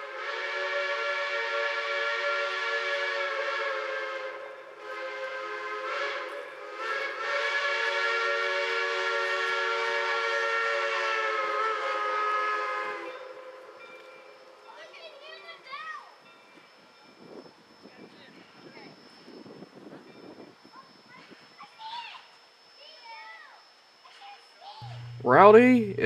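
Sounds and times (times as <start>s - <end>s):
steam whistle blasts: 0.0s - 14.7s.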